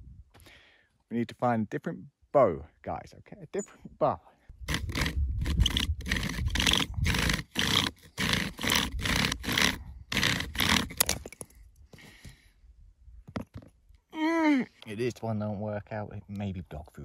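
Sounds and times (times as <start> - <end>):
bow drill spindle grinding: 4.6 - 11.2.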